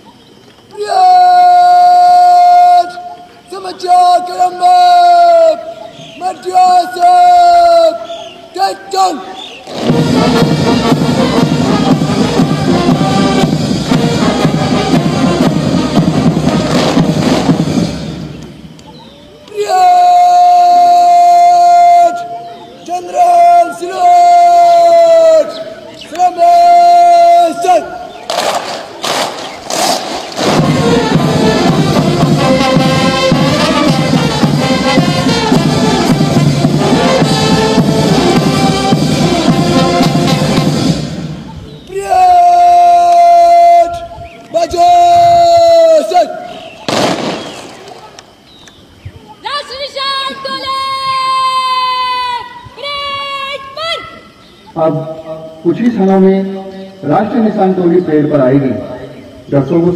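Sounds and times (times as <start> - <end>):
drums: 9.5 - 21.6, 28.2 - 43.8
military band playing march: 9.6 - 18.8, 20.3 - 43.7.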